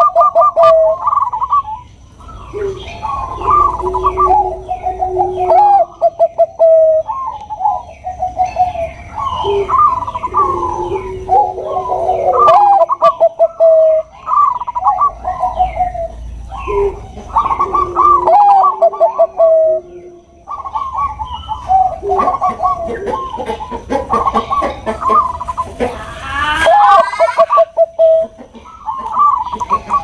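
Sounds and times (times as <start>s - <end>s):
faint higher chirps: 0.0s - 23.6s
doves cooing: 0.0s - 30.0s.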